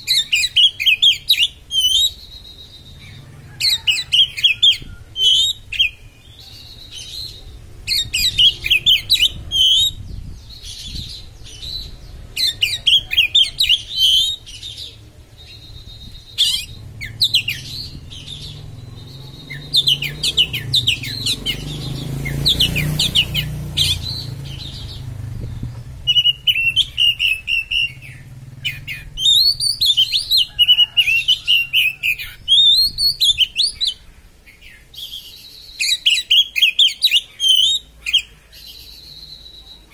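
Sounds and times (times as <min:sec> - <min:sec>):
bird chattering and whistling: 0:00.0 - 0:39.9
low rumble: 0:13.8 - 0:30.4.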